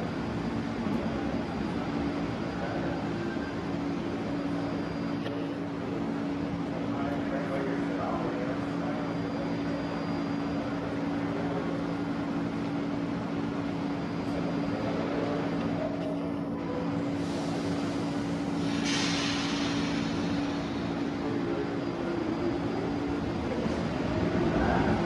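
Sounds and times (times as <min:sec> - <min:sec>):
train wheels rumbling on rail: 0:10.6 - 0:25.0
hiss: 0:17.2 - 0:20.9.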